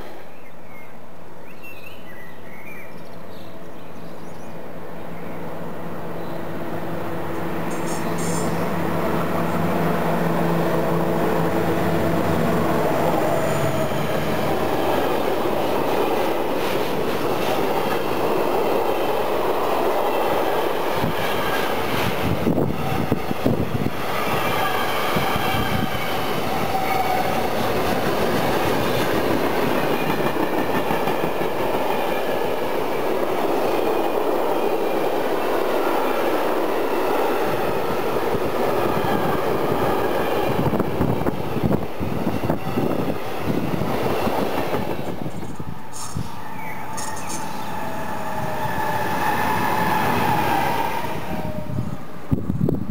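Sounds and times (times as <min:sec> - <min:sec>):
train wheels rumbling and rattling: 0:06.1 - 0:52.9.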